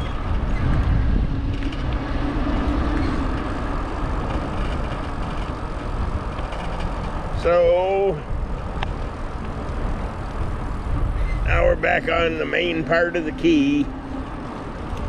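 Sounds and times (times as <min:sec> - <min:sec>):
road traffic noise: 0:00.0 - 0:15.0
wind rushing over microphone: 0:00.0 - 0:15.0.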